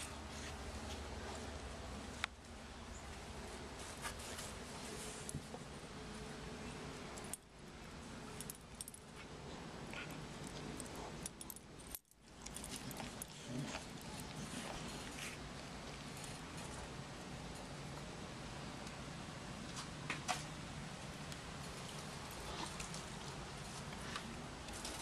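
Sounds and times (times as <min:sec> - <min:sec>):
steady background noise: 0:00.0 - 0:25.0
dog collar tags jingling: 0:10.5 - 0:14.6.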